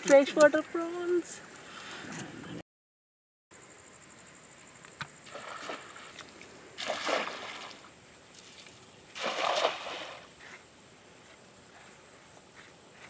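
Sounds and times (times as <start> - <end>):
high insect trill: 3.5 - 13.0
water sloshing and splashing: 5.2 - 10.3.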